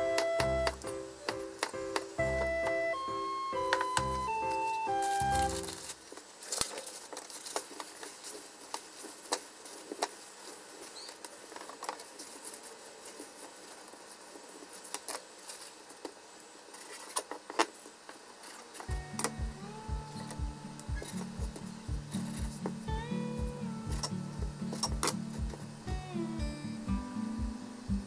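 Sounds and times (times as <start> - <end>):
paper crinkling and rustling: 3.7 - 18.9.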